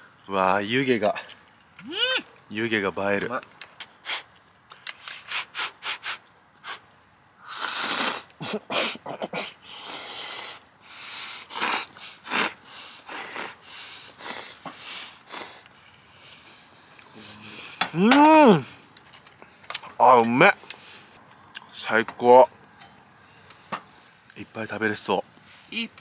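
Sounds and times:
person slurping noodles: 7.4 - 8.3, 11.5 - 13.6, 14.2 - 15.7.

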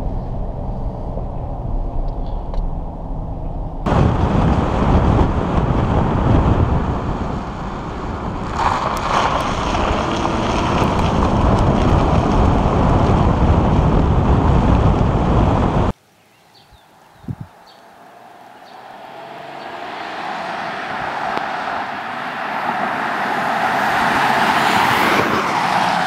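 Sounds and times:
muffled cabin drone: 0.0 - 4.1
tyre road noise: 0.0 - 16.0, 16.9 - 26.0
wind buffeting microphone: 0.0 - 16.0, 16.7 - 17.6.

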